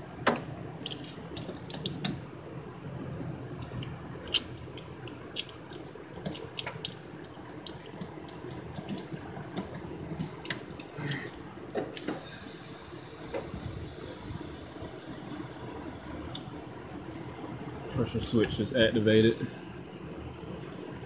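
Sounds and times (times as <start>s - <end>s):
steady high hiss: 11.9s - 19.5s.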